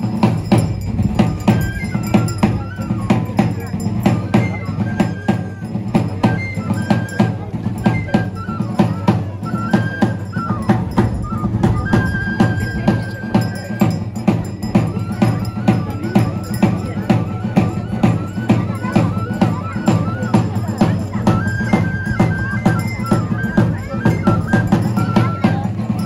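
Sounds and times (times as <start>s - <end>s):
large drum beating: 0.0s - 26.0s
high thin melody: 9.7s - 15.8s.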